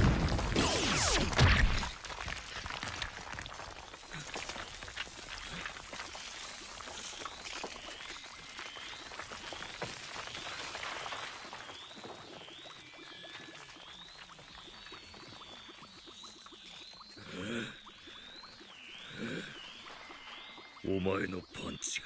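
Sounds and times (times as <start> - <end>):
falling rubble crackle: 0.0 - 13.0.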